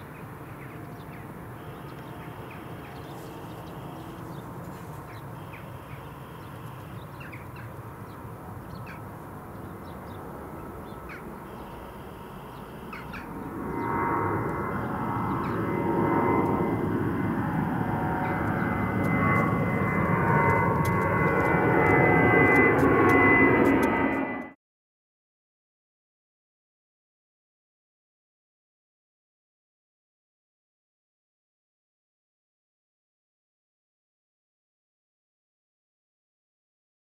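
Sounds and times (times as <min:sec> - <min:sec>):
jet airliner climbing: 0:09.2 - 0:24.6.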